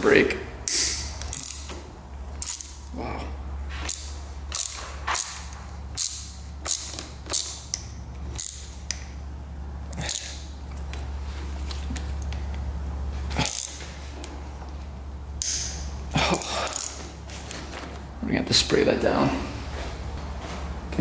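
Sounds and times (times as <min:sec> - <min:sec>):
steady low hum: 0:00.0 - 0:21.0
hand tool clicking on bolt: 0:00.6 - 0:01.8, 0:02.4 - 0:02.9, 0:03.9 - 0:09.1, 0:09.9 - 0:10.4.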